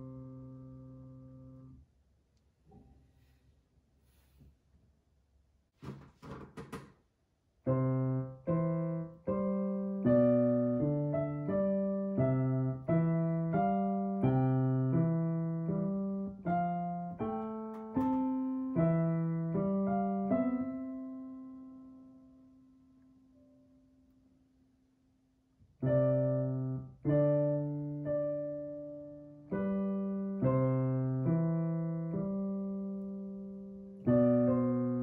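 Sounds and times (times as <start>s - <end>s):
digital piano chords: 0.0s - 1.8s, 7.6s - 24.3s, 25.8s - 35.0s.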